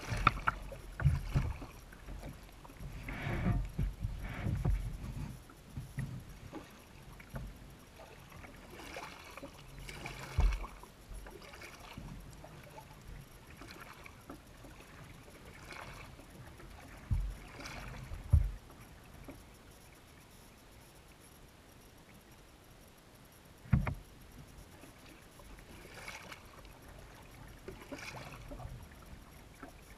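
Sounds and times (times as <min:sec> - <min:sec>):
paddle splashing in water: 0:00.0 - 0:19.5, 0:24.8 - 0:29.9
low knocks: 0:23.7 - 0:24.0.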